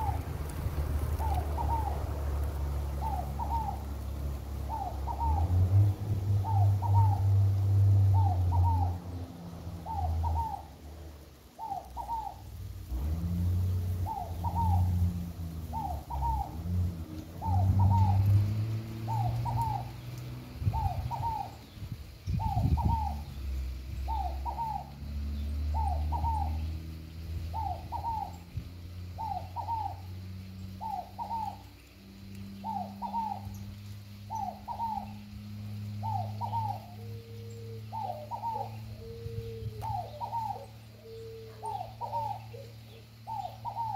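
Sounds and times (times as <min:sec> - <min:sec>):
low rumble: 0:00.0 - 0:04.2
dove cooing: 0:00.0 - 0:23.4, 0:24.0 - 0:25.1, 0:25.7 - 0:26.8, 0:27.5 - 0:28.5, 0:29.2 - 0:31.8, 0:32.5 - 0:43.9.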